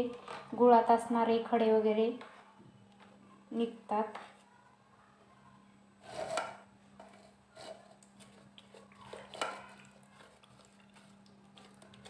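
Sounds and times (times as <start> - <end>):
spoon scraping pulp through sieve: 6.0 - 12.0.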